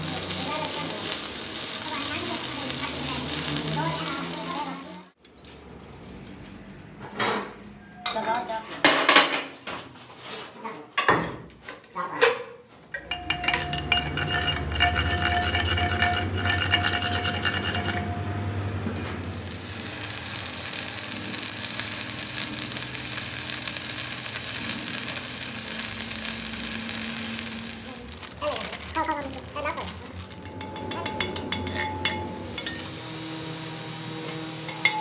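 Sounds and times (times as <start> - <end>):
welding arc crackling and hissing: 0.0 - 5.2, 13.0 - 18.1, 18.9 - 30.6.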